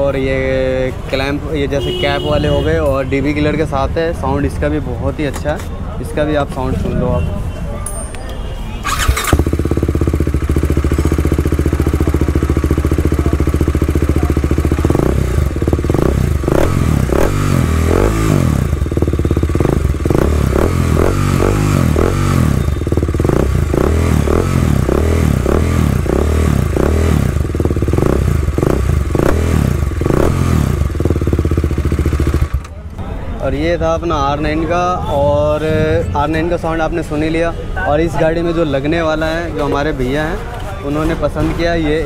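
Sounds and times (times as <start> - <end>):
motorcycle engine idling and revving: 8.8 - 32.9.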